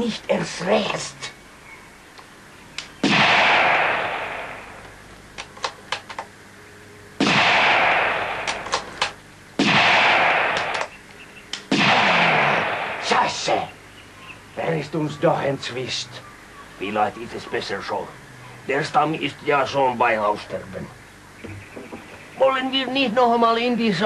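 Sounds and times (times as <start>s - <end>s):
sharp clicks: 2.1s - 3.0s, 4.8s - 6.3s, 8.4s - 9.2s, 10.5s - 11.8s
rifle shots: 3.0s - 4.8s, 7.2s - 10.9s, 11.7s - 13.3s.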